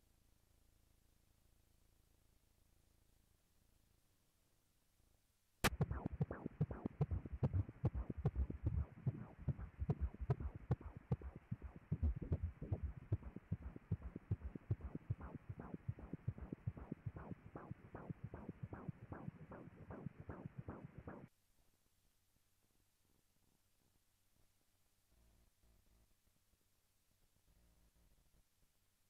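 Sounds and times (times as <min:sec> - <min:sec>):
doppler fetal heartbeat: 0:05.7 - 0:21.3.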